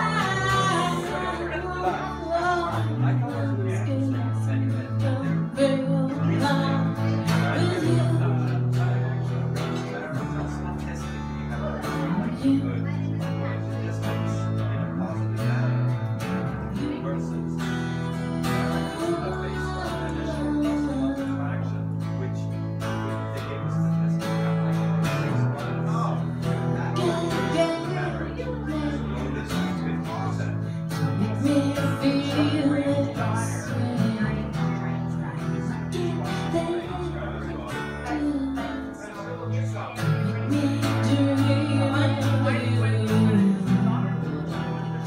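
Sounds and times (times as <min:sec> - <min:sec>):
woman singing: 0:00.0 - 0:08.6, 0:17.9 - 0:21.6, 0:27.0 - 0:29.0, 0:31.0 - 0:34.8, 0:35.9 - 0:37.2, 0:38.0 - 0:39.0, 0:40.2 - 0:44.2
acoustic guitar strumming: 0:00.0 - 0:45.0
upright bass long low notes: 0:00.0 - 0:45.0.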